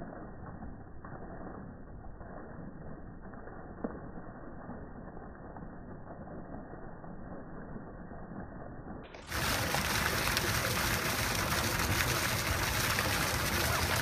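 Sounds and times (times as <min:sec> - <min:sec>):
fountain water splashing: 0:09.1 - 0:14.0.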